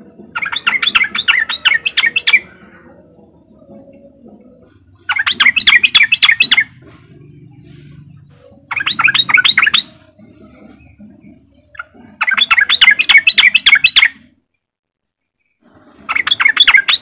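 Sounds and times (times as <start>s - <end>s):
bird chattering call: 0.0s - 7.9s, 8.5s - 14.3s, 15.9s - 17.0s.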